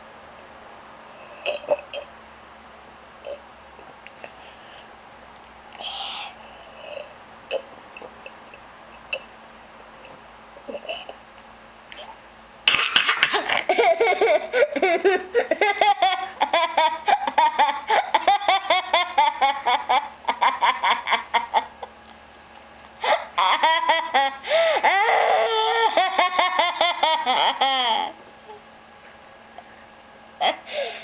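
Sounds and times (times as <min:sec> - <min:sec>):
child laughing hysterically: 0:12.9 - 0:21.8, 0:23.0 - 0:28.2, 0:30.4 - 0:30.8.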